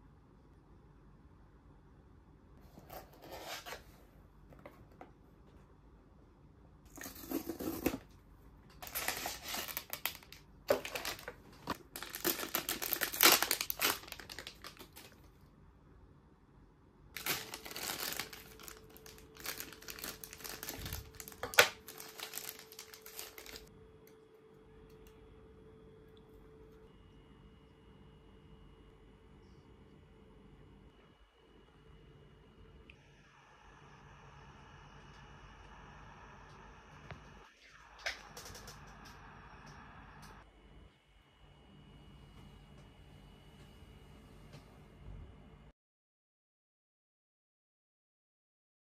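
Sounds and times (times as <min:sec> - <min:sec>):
plastic wrapping crinkling: 0:08.8 - 0:15.4, 0:17.2 - 0:23.7.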